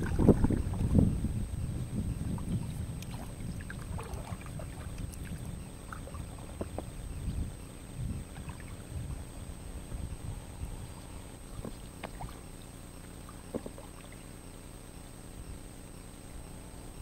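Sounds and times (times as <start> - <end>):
paddle splashing water: 0.0 - 1.0, 2.2 - 7.0, 8.3 - 8.9, 11.0 - 14.3
low rumble: 0.0 - 12.6.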